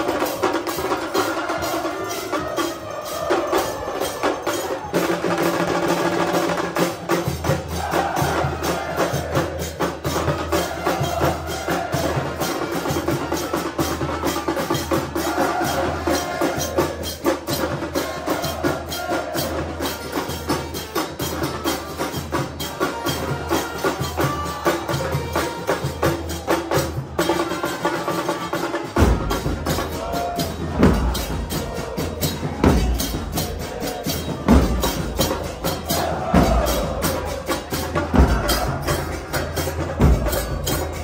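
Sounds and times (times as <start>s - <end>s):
crowd singing a chant: 0.0s - 41.0s
trumpets playing: 7.8s - 17.0s, 18.0s - 26.4s, 27.2s - 41.0s
bass drums beating: 29.0s - 41.0s.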